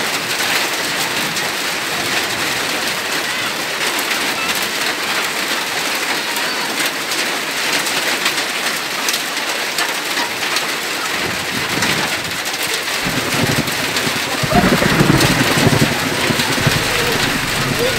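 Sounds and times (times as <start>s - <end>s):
hail and rain falling hard: 0.0s - 17.9s
low rumble: 13.0s - 17.9s.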